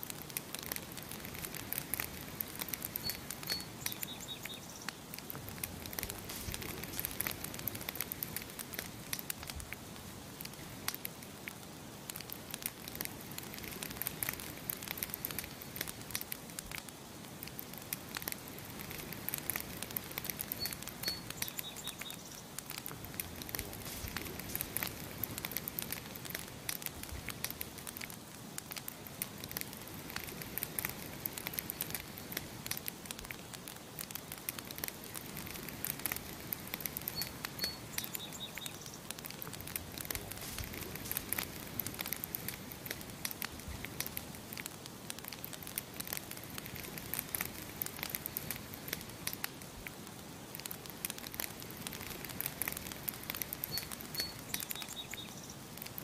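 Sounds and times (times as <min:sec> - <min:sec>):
campfire crackling and popping: 0:00.0 - 0:56.0
bird chirping: 0:03.0 - 0:05.0, 0:20.5 - 0:22.5, 0:37.1 - 0:39.0, 0:53.7 - 0:55.6.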